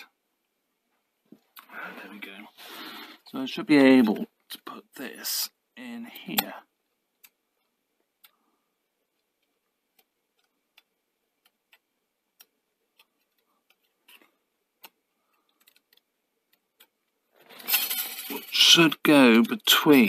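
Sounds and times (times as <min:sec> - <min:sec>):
small metal clicks and ticks: 0:09.1 - 0:18.8.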